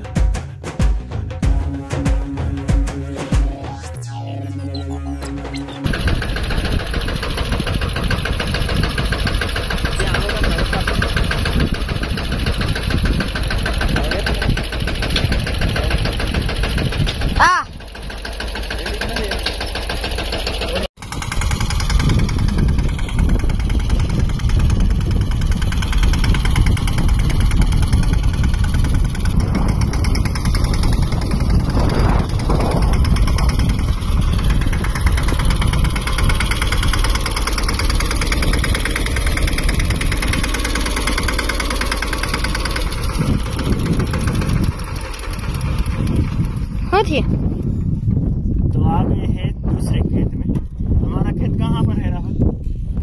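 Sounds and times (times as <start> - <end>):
tractor diesel engine running: 4.6 - 48.6.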